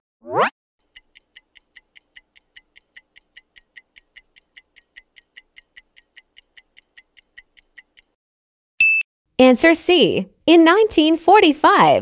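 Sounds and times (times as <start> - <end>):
clock ticking: 0.8 - 8.2.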